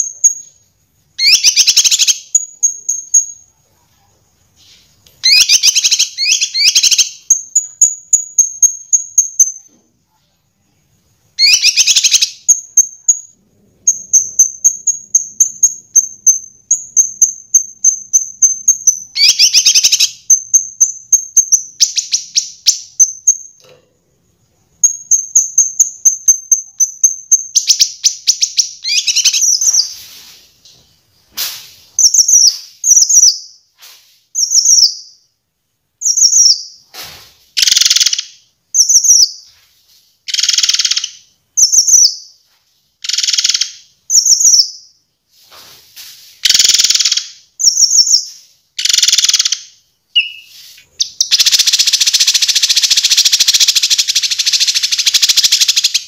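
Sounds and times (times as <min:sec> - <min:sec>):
songbird chirps and trills: 0:00.0 - 0:35.4, 0:36.0 - 0:36.9, 0:37.5 - 0:56.0
bird down-slurred whistles: 0:50.2 - 0:56.0.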